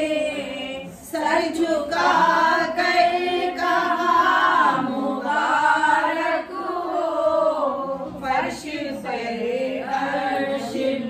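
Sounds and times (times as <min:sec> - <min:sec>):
women singing together: 0:00.0 - 0:11.0.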